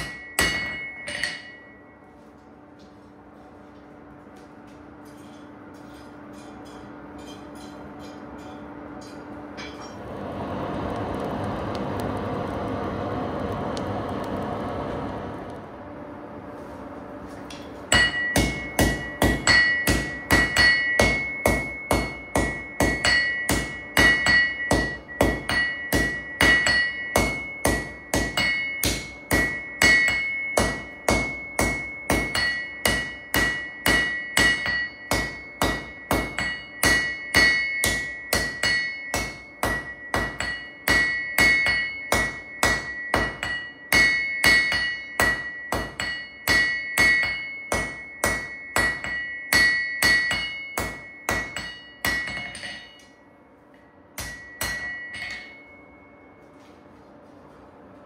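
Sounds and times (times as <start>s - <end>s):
hammer blows ringing on anvil: 0.0s - 2.3s, 5.0s - 10.1s, 17.5s - 56.5s.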